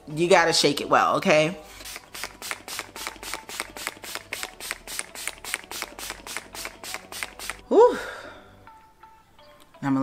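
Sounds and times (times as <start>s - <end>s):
spray bottle hissing spritzes: 1.8s - 7.6s.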